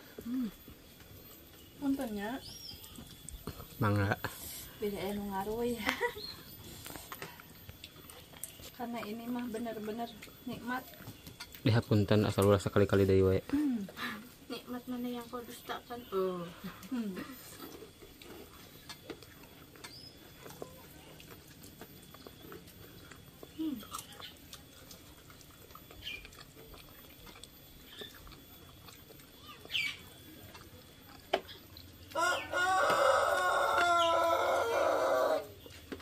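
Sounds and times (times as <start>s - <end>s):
rooster crowing: 32.1s - 35.6s.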